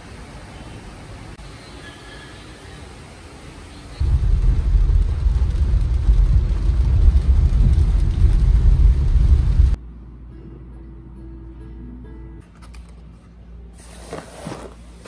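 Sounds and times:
heavy rain hissing: 0:00.0 - 0:09.8
car rumbling on wet road: 0:04.0 - 0:09.8.

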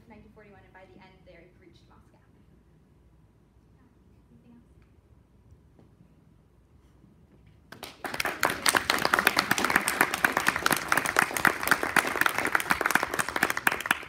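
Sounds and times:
audience applauding: 0:07.7 - 0:14.0.

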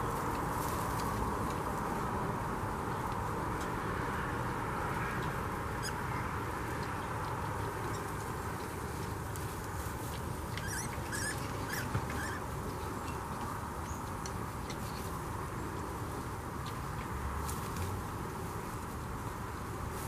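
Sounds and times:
piglets squeaking: 0:10.5 - 0:12.6.

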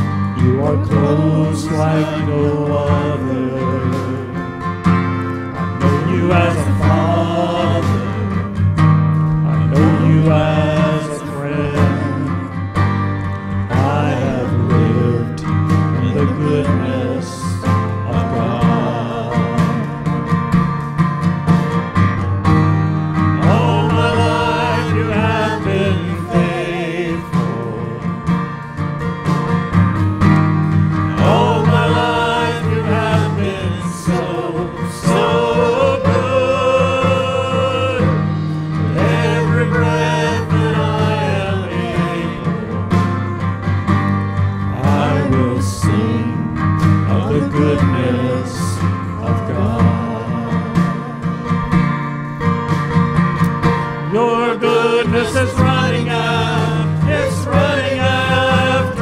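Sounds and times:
people singing: 0:00.0 - 0:20.8, 0:23.2 - 0:28.7, 0:31.0 - 0:52.0, 0:53.9 - 0:59.0
acoustic guitar: 0:00.0 - 0:59.0
drums: 0:00.0 - 0:59.0
piano: 0:00.0 - 0:59.0
sustained low notes: 0:05.6 - 0:12.8.

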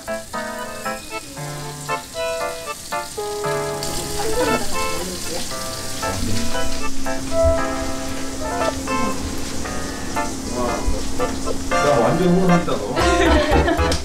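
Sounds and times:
running water hiss: 0:00.0 - 0:13.8
light bouncy background music: 0:06.2 - 0:14.0.

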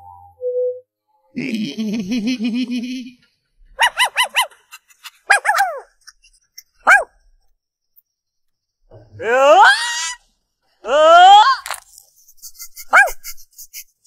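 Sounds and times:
small dog yipping: 0:03.8 - 0:04.6, 0:05.3 - 0:05.9, 0:06.8 - 0:07.2, 0:12.9 - 0:13.3.

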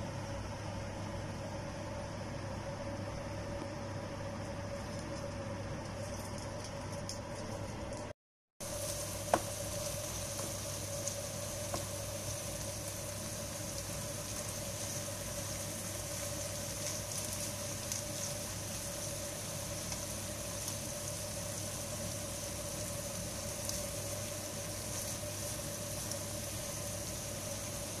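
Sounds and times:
steady hum: 0:00.0 - 0:28.0
beef and onions sizzling in a pan: 0:08.6 - 0:28.0.

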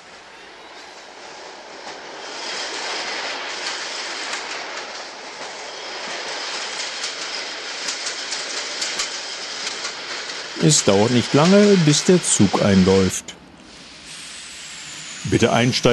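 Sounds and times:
toy train wheels rattling on rails: 0:06.0 - 0:12.3.

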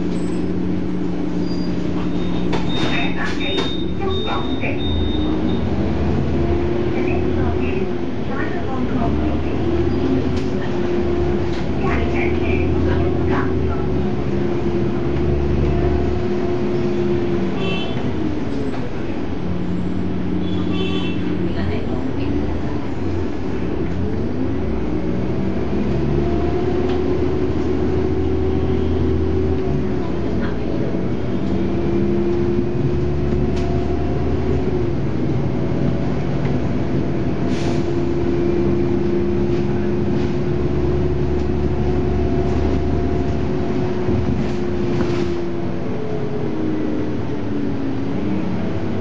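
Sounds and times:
bus engine running: 0:00.0 - 0:49.0
short air hiss: 0:37.5 - 0:38.0.

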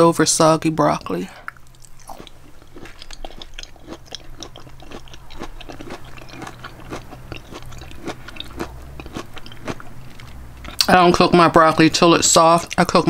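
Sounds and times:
person chewing crunchy broccoli: 0:01.5 - 0:10.9.

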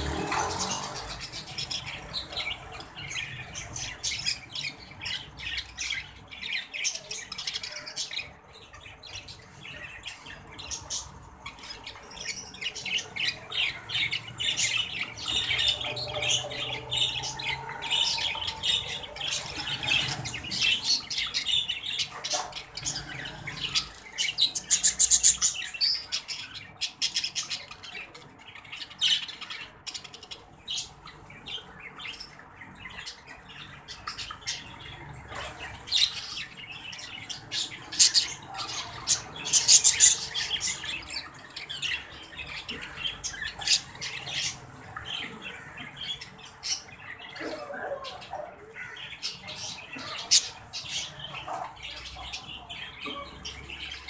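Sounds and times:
budgerigars chattering: 0:09.2 - 0:28.2, 0:32.8 - 0:54.0.

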